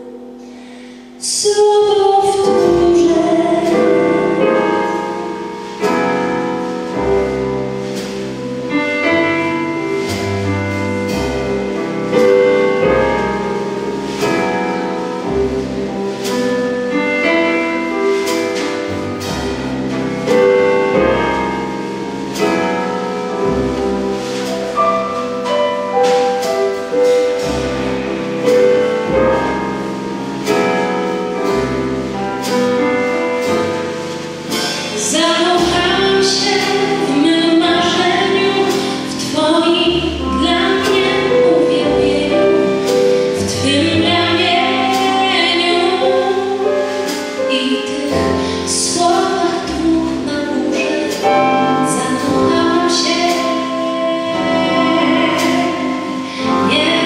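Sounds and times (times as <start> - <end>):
jazz band playing: 0.0 - 57.0
woman singing: 1.2 - 5.2, 34.9 - 57.0
drum and cymbal strokes: 2.4 - 57.0.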